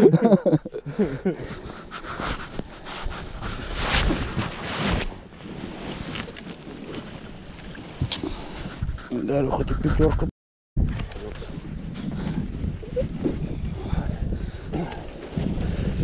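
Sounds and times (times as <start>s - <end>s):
jacket fabric rustling: 1.5s - 6.3s
wind buffeting microphone: 5.4s - 16.0s.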